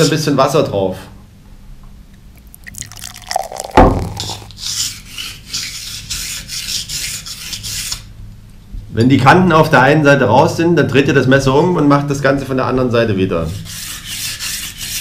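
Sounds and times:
water dripping: 2.2s - 4.6s.

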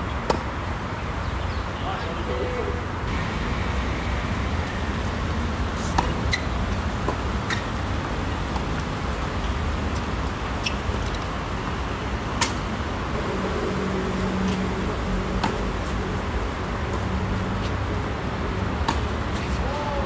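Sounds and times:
steady city hum: 0.0s - 20.0s
droning mechanical tone: 13.1s - 17.4s.

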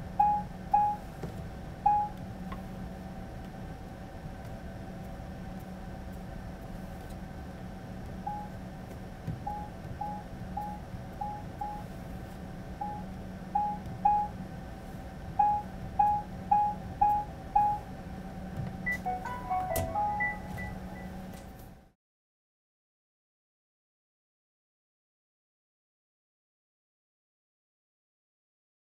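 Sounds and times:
short control panel beeps: 18.9s - 21.2s.

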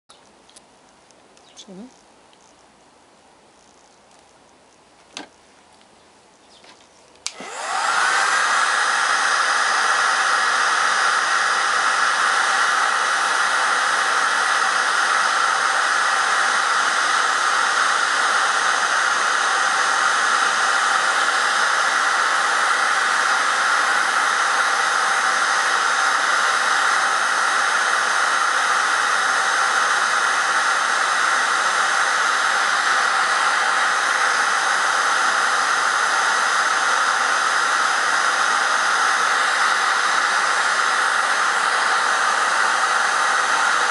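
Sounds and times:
heat gun switch click: 7.2s - 7.5s
heat gun blowing air: 7.2s - 43.9s.

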